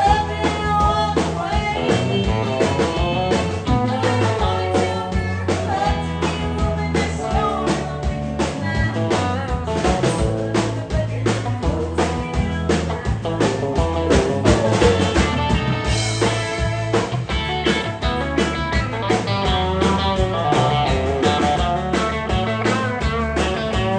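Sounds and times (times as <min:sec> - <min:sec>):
woman singing: 0:00.0 - 0:17.2
live country band playing: 0:00.0 - 0:23.9.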